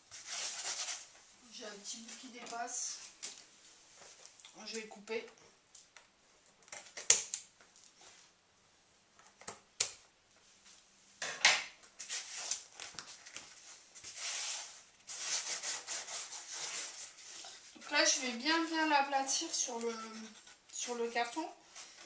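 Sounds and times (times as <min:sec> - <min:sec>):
velcro rustling and rubbing: 0:00.0 - 0:01.2, 0:12.0 - 0:18.2.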